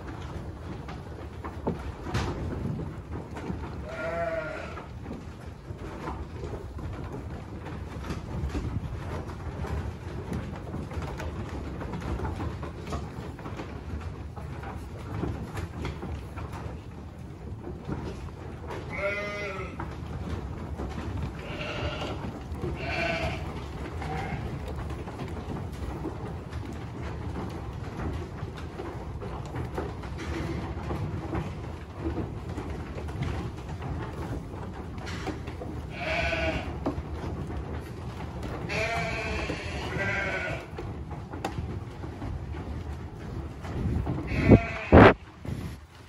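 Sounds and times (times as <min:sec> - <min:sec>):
sheep munching hay: 0:00.0 - 0:12.0, 0:12.7 - 0:29.8, 0:31.0 - 0:46.0
sheep bleating: 0:03.8 - 0:04.8, 0:18.9 - 0:19.8, 0:21.4 - 0:22.2, 0:22.8 - 0:23.4, 0:35.9 - 0:36.7, 0:38.7 - 0:40.7, 0:44.3 - 0:45.2.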